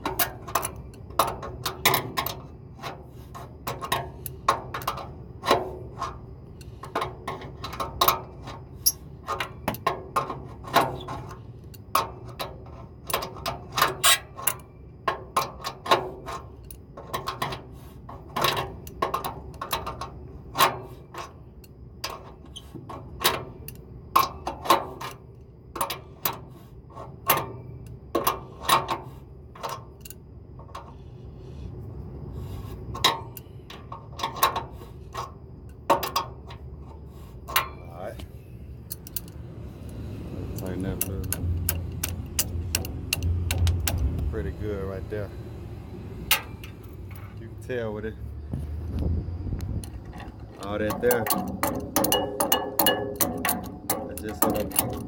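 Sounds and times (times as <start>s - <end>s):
steady low hum: 0.0s - 55.0s
wrench clinking against metal bolt: 40.5s - 44.0s, 49.8s - 55.0s.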